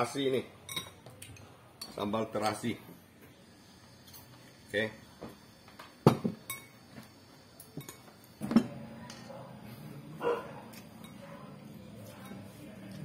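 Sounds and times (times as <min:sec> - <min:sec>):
spoon and chopsticks clicking bowls: 0:10.7 - 0:11.3.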